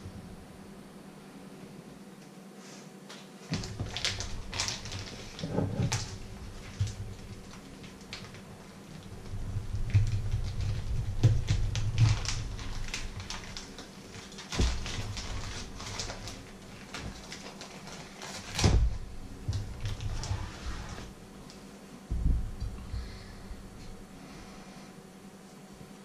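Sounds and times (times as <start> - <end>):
plastic packaging crinkling: 3.1 - 21.1.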